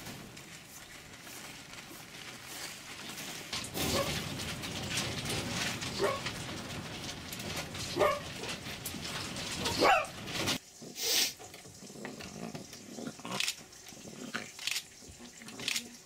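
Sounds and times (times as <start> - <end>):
cage clicks and rattles: 2.8 - 10.6.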